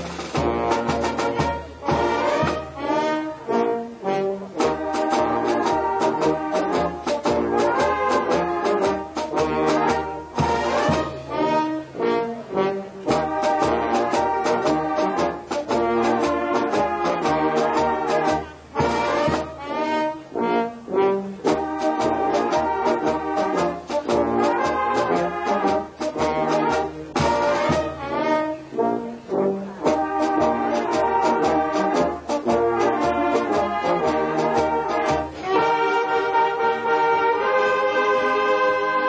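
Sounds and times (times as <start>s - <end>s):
steady drum beat: 0.0s - 2.8s, 4.6s - 11.3s, 13.1s - 19.6s, 21.5s - 28.1s, 29.9s - 35.6s
brass band playing: 0.0s - 39.0s
trombones: 0.0s - 39.0s.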